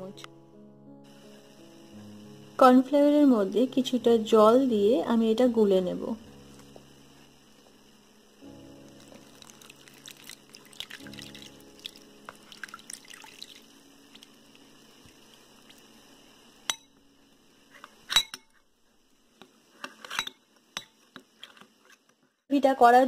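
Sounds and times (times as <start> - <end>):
water trickling into bowl: 8.9 - 15.9.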